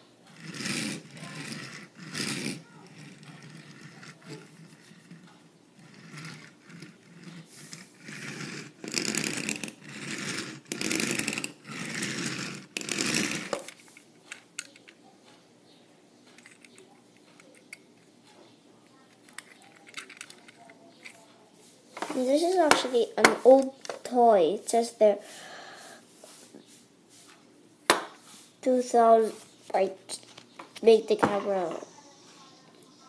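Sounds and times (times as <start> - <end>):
toy train rattling on wooden table: 0.3 - 14.0.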